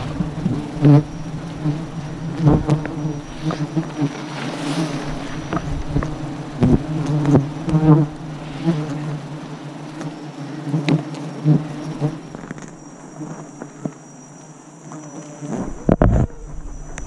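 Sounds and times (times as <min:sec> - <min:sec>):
bees buzzing: 0:00.0 - 0:17.0.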